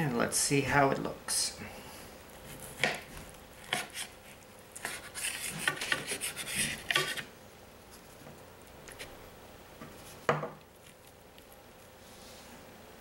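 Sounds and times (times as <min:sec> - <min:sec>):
knife sawing and scraping plate: 0:03.6 - 0:04.2, 0:04.8 - 0:07.3.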